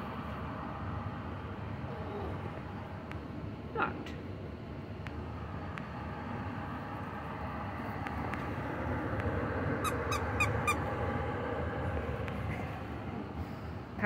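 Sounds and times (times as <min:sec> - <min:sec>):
toy squeaker squeaking: 0:09.8 - 0:10.8.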